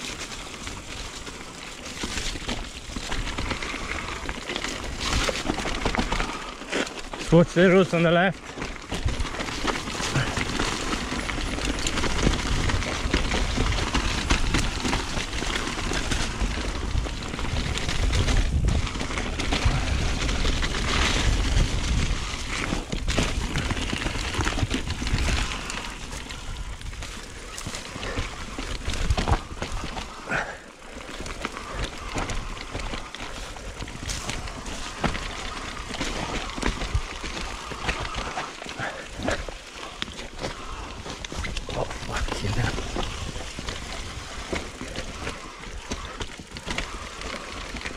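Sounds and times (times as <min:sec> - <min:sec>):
bike knocking and clattering: 0:00.0 - 0:47.9
bike tyres running on dirt: 0:00.0 - 0:47.9.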